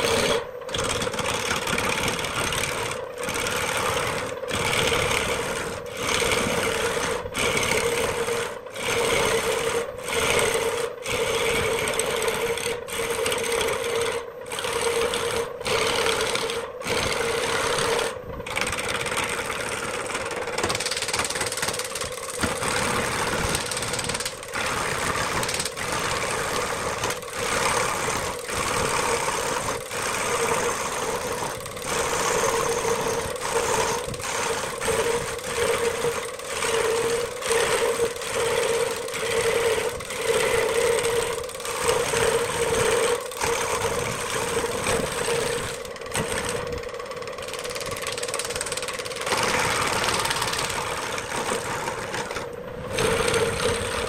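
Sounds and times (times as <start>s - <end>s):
lathe motor hum: 0.0s - 54.0s
turning tool scraping wood: 0.0s - 54.0s.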